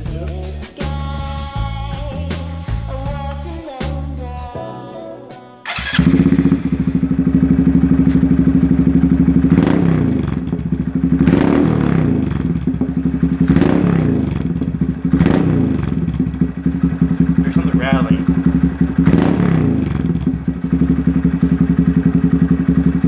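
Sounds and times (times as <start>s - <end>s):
motorcycle engine idling and revving: 5.7s - 23.0s.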